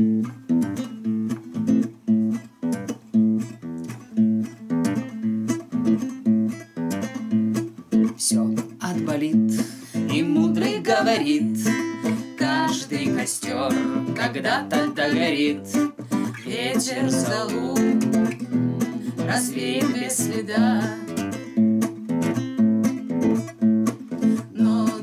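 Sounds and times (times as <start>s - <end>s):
classical guitar strumming chords: 0.0s - 25.0s
people singing: 10.0s - 21.2s, 24.4s - 25.0s.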